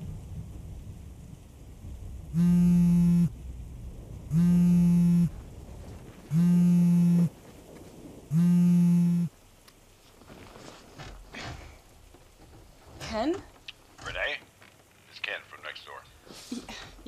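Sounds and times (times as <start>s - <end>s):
faint rain: 0.0s - 17.0s
phone vibrating on table: 2.3s - 3.4s, 4.3s - 5.4s, 6.3s - 7.4s, 8.3s - 9.3s.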